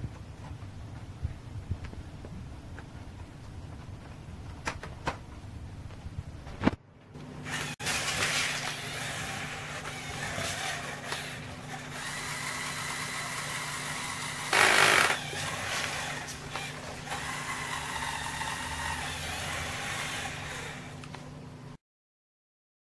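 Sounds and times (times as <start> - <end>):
electric motor and gears whining: 7.4 - 21.2
loud burst of noise: 11.9 - 15.9.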